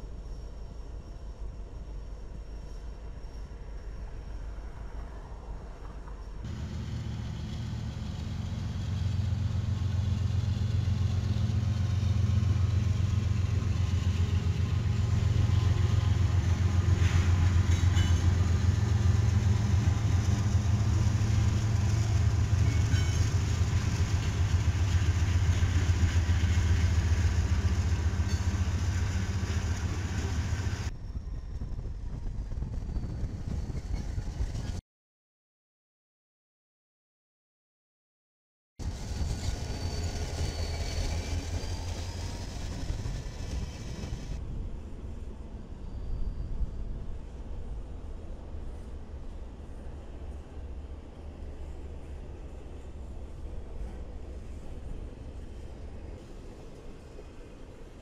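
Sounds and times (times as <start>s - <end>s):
diesel locomotive moving slowly: 0.0s - 34.8s, 38.8s - 58.0s
diesel locomotives droning: 0.0s - 34.8s, 38.8s - 58.0s
light clicks from passing train: 3.8s - 30.9s, 32.0s - 34.8s, 38.8s - 58.0s.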